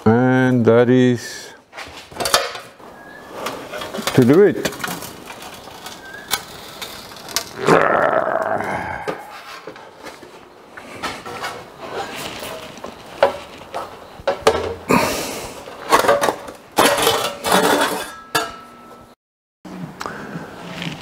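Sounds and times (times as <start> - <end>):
steel sheet rattling and clanking: 15.8 - 18.6.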